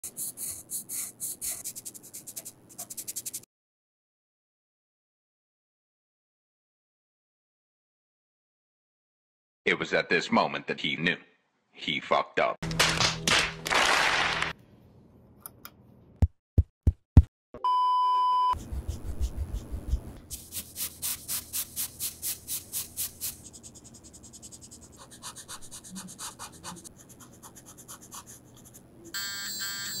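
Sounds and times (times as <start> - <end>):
brush scrubbing on paper: 0.0 - 3.4, 18.6 - 28.8.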